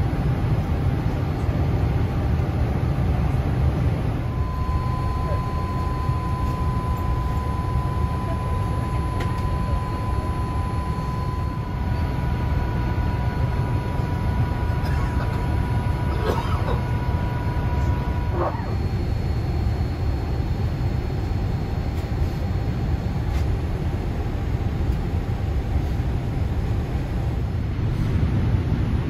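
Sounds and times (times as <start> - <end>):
low rumble of airflow and engines: 0.0 - 29.0
thin high whine: 4.2 - 23.8.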